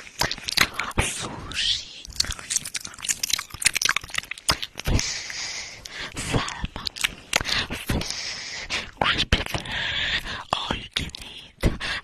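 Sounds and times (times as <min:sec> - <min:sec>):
wet mouth clicks and smacks: 0:00.0 - 0:08.2, 0:10.6 - 0:11.8.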